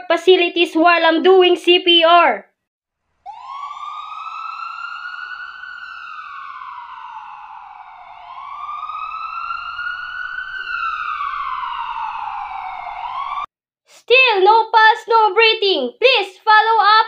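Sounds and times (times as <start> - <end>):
emergency vehicle siren wailing: 3.2 - 13.5.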